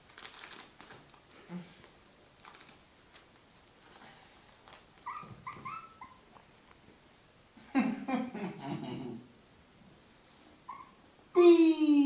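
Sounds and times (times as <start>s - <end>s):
puppies scratching and rustling: 0.0s - 7.2s
puppy whimper: 5.0s - 6.2s, 10.7s - 11.0s.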